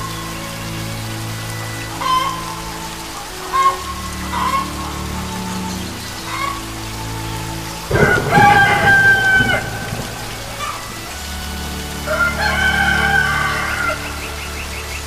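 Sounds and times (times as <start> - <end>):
steady rain hissing: 0.0 - 15.0
rooster crowing: 7.9 - 11.1, 12.0 - 14.2.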